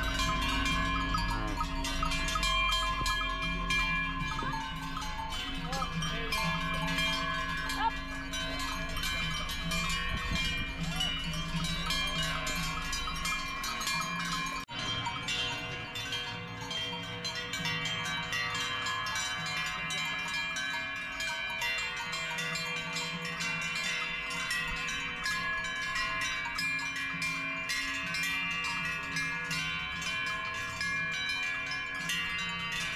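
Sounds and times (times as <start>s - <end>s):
cowbells clanging: 0.0s - 32.9s.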